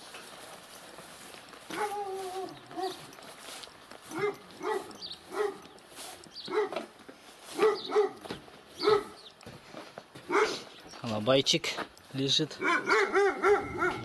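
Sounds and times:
dog barking: 1.7s - 3.0s, 4.1s - 5.7s, 6.5s - 6.9s, 7.5s - 9.2s, 10.3s - 10.7s, 12.6s - 14.0s.

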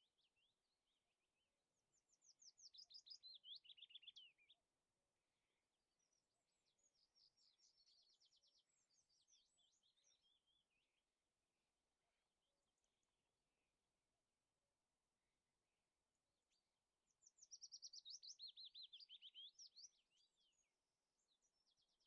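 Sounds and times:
songbird trilling and chirping: 2.0s - 4.6s, 6.8s - 10.8s, 17.2s - 22.0s.

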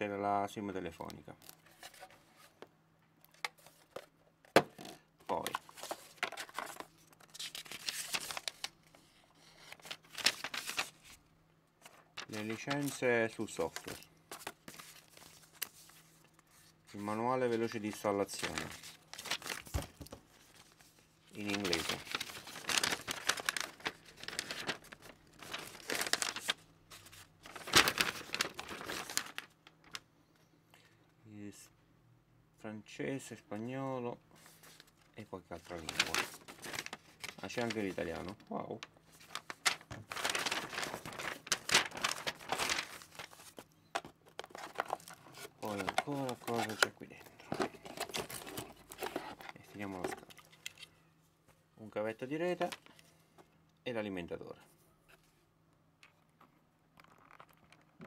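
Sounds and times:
paper rustling and crinkling: 5.3s - 11.2s, 11.8s - 30.0s, 34.4s - 50.9s.

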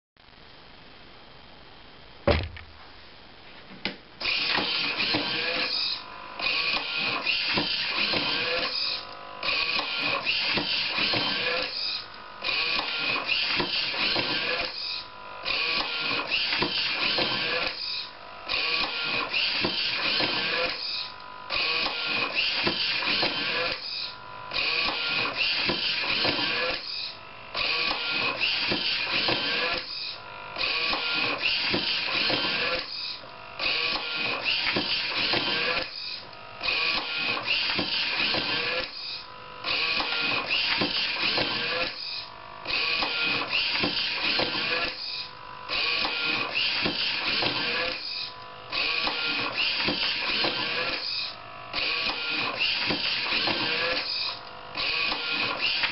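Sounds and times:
single thump: 2.3s - 2.8s
book scanner mechanical whirring: 4.2s - 55.9s.

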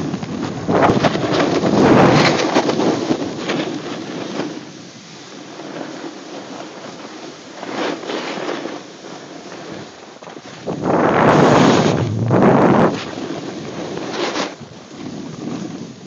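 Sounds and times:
wind on microphone: 0.0s - 4.8s, 9.6s - 16.0s
snowboard scraping over snow: 0.0s - 16.0s.

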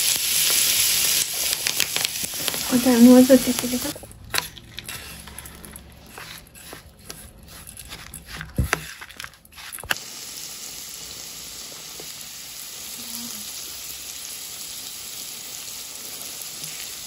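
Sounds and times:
hot oil sizzling: 0.0s - 4.0s, 9.8s - 17.0s
spoon stirring in steel bowl: 3.9s - 10.0s.

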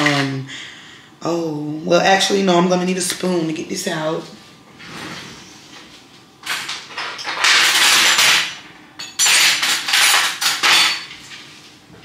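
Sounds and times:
cutlery clattering in a drawer: 6.4s - 11.2s.

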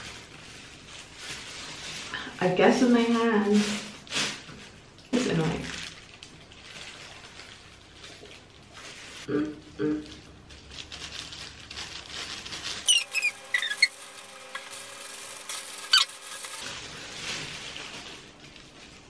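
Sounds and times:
plastic gloves crinkling: 0.0s - 9.3s, 10.0s - 19.0s
short high squeaks: 12.8s - 16.6s.

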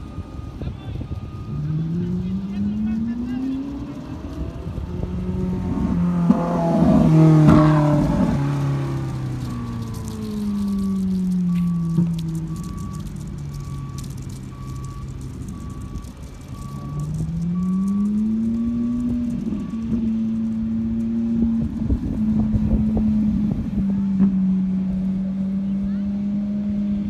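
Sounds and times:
reversing alarm beeping: 0.0s - 4.7s, 9.4s - 20.4s
car engine accelerating: 0.0s - 27.0s.

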